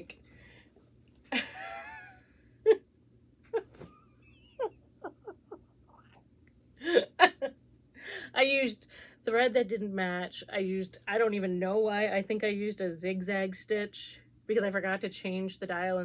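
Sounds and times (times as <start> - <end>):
woman laughing: 1.3 - 2.8, 3.5 - 5.8, 6.8 - 7.5.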